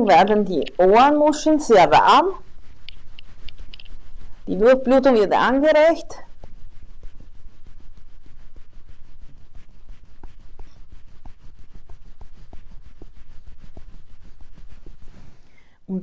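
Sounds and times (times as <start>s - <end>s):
fingers rubbing over ears: 0.0s - 15.8s
small ticks: 2.8s - 3.9s.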